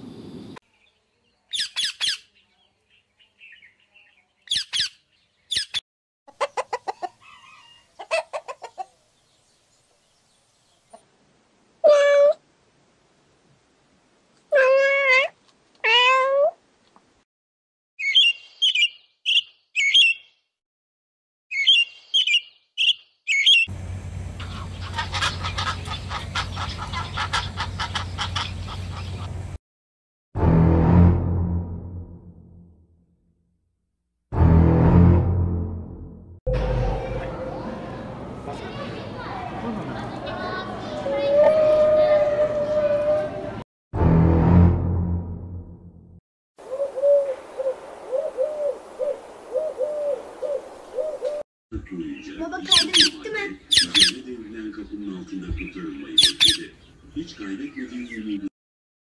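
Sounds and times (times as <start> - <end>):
budgerigar chirps: 1.5 - 2.3, 4.5 - 5.8, 18.0 - 20.3, 21.5 - 23.7, 52.7 - 54.2, 56.2 - 56.9
high repeated bird calls: 1.5 - 5.8, 18.0 - 20.5, 21.5 - 23.7, 52.1 - 54.3, 55.5 - 58.4
cat meowing: 11.8 - 12.4, 14.5 - 16.6
noisy rhythmic din: 34.3 - 38.3.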